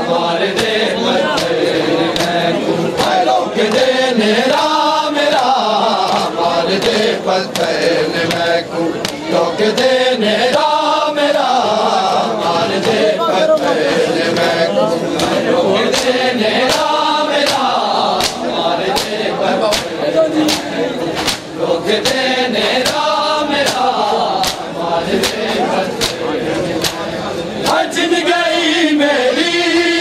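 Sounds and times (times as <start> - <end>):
men chanting in unison: 0.0 - 30.0
chest-beating slaps: 1.4 - 2.4, 5.4 - 9.9, 15.2 - 27.8.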